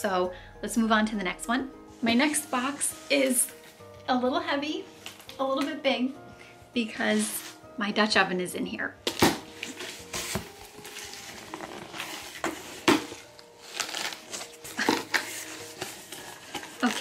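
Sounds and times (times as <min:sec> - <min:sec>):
cardboard rustling and scraping: 0:09.5 - 0:17.0.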